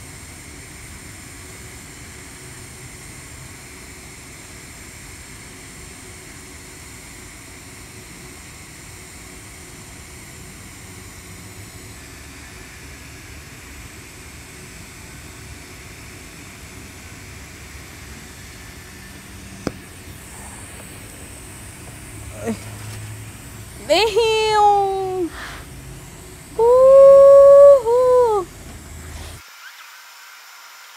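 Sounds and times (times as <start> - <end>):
welding arc hissing: 16.3 - 30.9.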